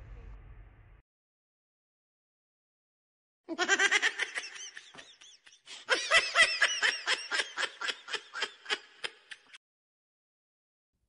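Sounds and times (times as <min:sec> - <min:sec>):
person laughing high-pitched: 0:03.5 - 0:09.6.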